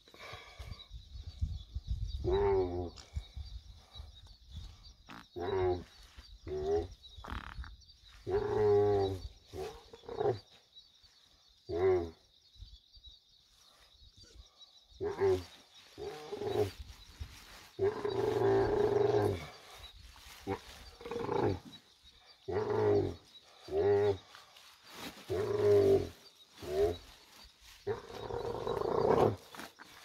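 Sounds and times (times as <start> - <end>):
camel groaning: 17.8 - 19.6, 20.4 - 21.7, 22.5 - 24.2, 25.3 - 27.0, 27.8 - 29.7.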